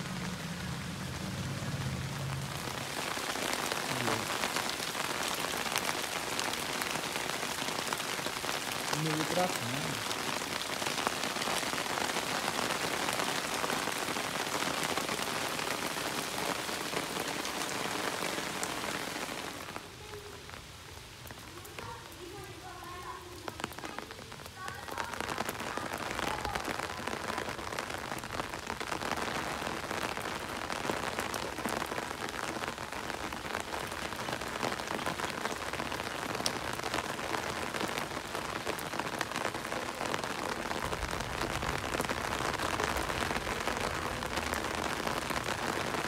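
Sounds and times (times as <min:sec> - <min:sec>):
steady rain hiss: 0:00.0 - 0:46.0.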